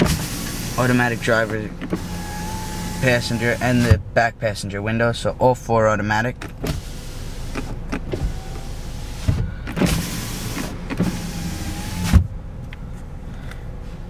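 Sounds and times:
car window motor whining: 0.0 - 4.0, 6.5 - 12.3.

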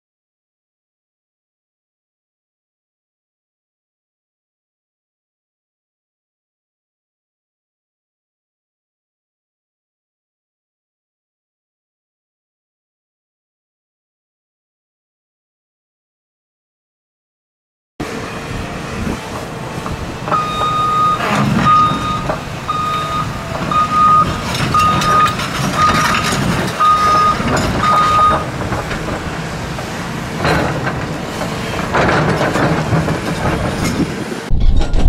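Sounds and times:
excavator engine running: 18.0 - 35.0
backup alarm beeping: 20.3 - 26.2, 26.8 - 28.5
loud machine clanks: 23.5 - 35.0.

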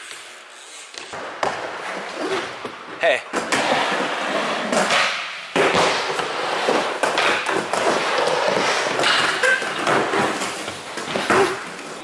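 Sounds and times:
skateboard wheels rolling on wood: 0.0 - 12.0
skateboard grinding on ledge: 3.4 - 11.8.

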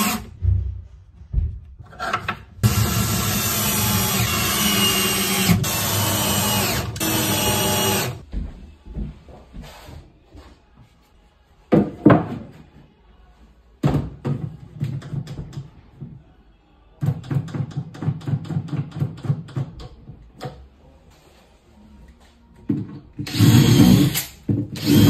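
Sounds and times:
wooden knocks on hollow panels: 11.7 - 12.6.

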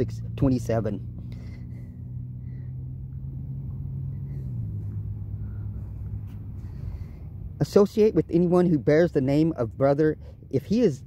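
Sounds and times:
low motor hum: 0.0 - 11.0.

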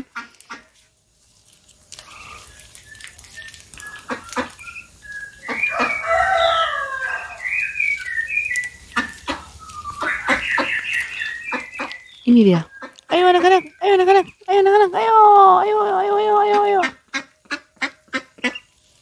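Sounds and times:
ducks quacking: 4.0 - 4.7, 8.8 - 12.0, 16.2 - 18.8.

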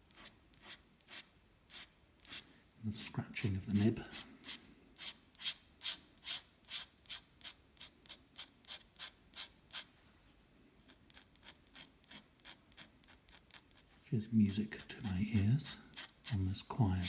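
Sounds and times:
pen nib scratching paper: 0.0 - 2.4, 4.1 - 9.9, 10.8 - 17.0.

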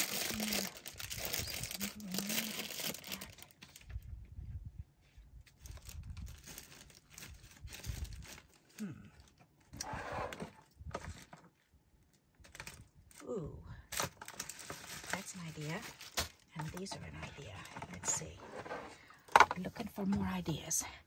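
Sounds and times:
plastic packaging rustling: 0.0 - 4.1, 5.4 - 11.7, 12.4 - 13.2, 13.9 - 19.5.

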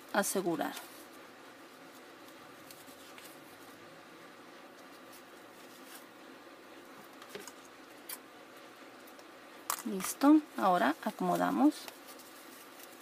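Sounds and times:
low steady hiss: 0.0 - 13.0
ribbon rustling: 0.6 - 3.8, 4.6 - 8.2, 9.8 - 13.0.

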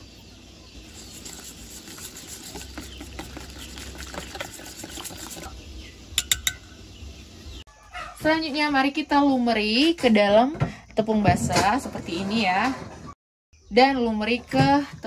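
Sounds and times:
wire whisk beating batter in bowl: 0.8 - 5.6
sharp taps on bowl: 6.2 - 6.7.

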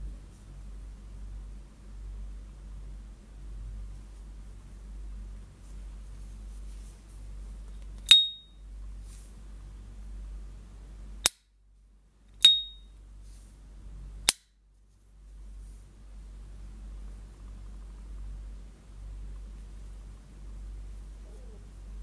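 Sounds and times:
lighter lid metallic ping: 8.0 - 8.5, 12.4 - 12.8.

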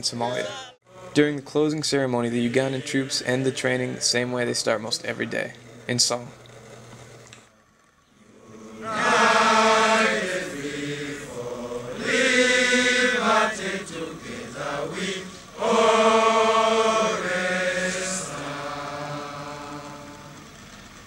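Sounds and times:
men singing in unison: 2.2 - 4.6, 8.2 - 20.6.

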